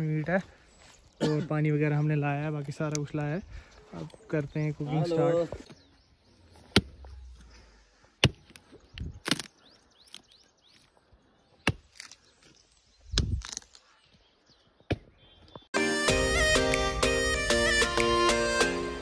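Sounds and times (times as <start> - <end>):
axe chopping dry wood: 6.7 - 7.0, 8.2 - 8.6, 11.6 - 12.2
wood cracking: 8.2 - 10.9, 13.2 - 13.9
music: 15.8 - 19.0.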